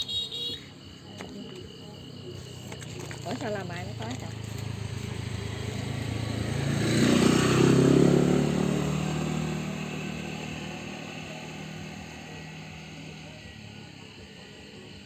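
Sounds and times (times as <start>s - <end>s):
motorbike passing by: 3.2s - 15.0s.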